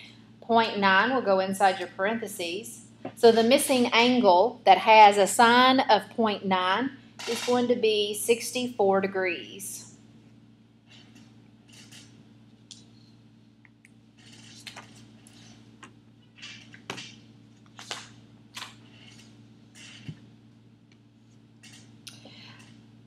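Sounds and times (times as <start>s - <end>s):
low electrical hum: 0.0s - 23.0s
paper sheets rustling: 14.2s - 15.6s, 16.4s - 20.1s.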